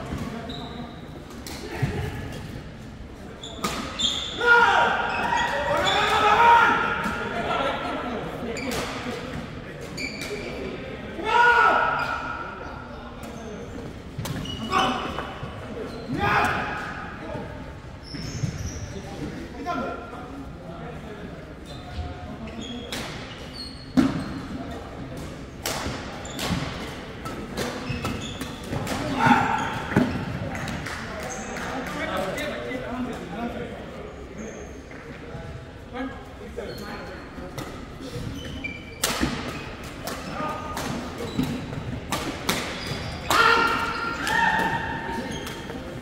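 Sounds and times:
shoe squeaks: 0.4s - 1.2s, 3.4s - 4.4s, 10.0s - 10.6s, 14.4s - 15.1s, 18.0s - 19.1s, 21.6s - 24.4s, 27.8s - 28.8s, 34.4s - 35.0s, 36.6s - 37.4s, 38.0s - 39.8s, 42.7s - 44.2s.

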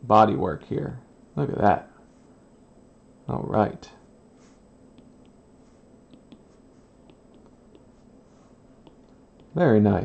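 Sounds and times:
low room hiss: 0.0s - 10.0s
stylus tapping glass screen: 6.1s - 8.0s.

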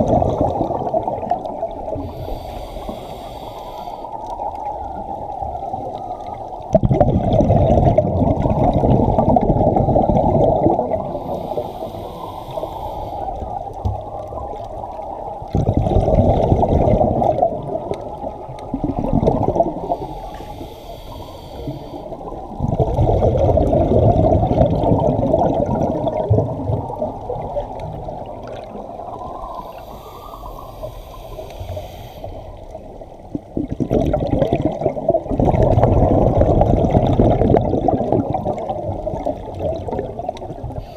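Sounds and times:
exhaled bubbles underwater: 0.0s - 40.9s
regulator inhalation hiss: 2.0s - 4.2s, 11.2s - 13.6s, 19.8s - 22.3s, 29.5s - 32.9s.

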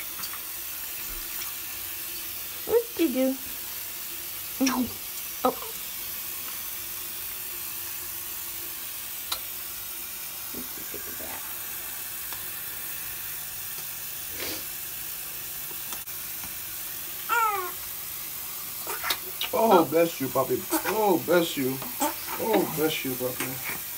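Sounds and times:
shower running: 0.0s - 23.9s
baby whimpering: 17.3s - 17.8s, 18.8s - 19.4s, 20.6s - 21.0s, 21.8s - 22.9s.

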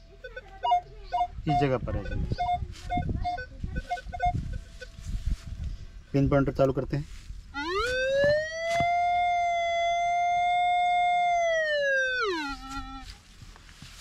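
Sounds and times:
metal detector electronic tone: 0.2s - 5.2s, 7.6s - 13.1s.

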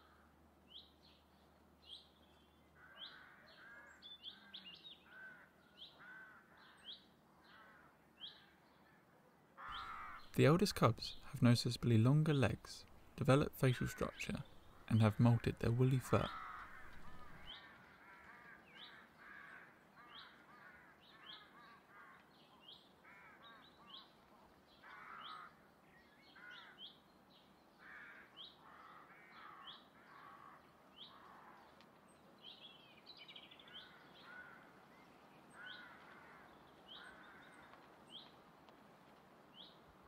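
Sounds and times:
lower bird calls: 9.6s - 22.2s.

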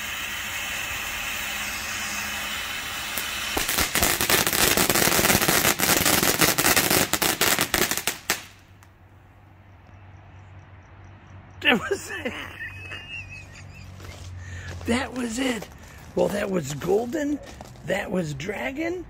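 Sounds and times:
firework rapid crackling: 0.0s - 8.8s
firework sparks hissing: 0.0s - 8.8s.

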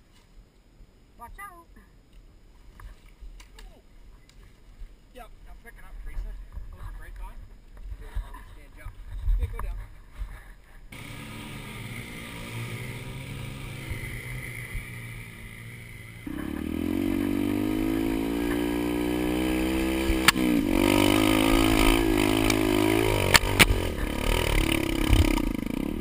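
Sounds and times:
dirt bike engine revving: 10.9s - 26.0s.

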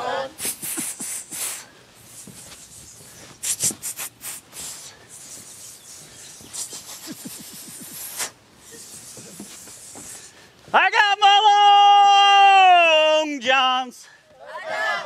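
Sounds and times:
person hissing: 0.4s - 10.4s.

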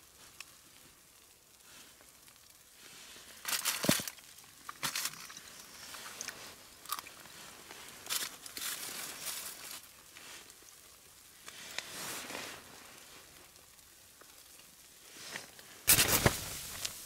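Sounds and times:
rustling and handling noises: 0.0s - 17.0s.

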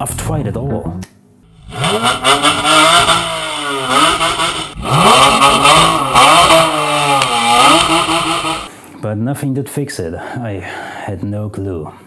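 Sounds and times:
car engine revving hard: 1.5s - 8.7s.

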